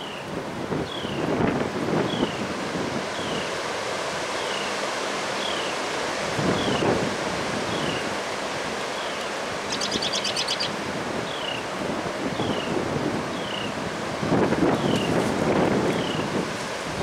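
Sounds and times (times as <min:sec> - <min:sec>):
wind rushing through trees: 0:00.0 - 0:17.0
bird chirping: 0:09.0 - 0:11.6
high bird trill: 0:09.0 - 0:11.6.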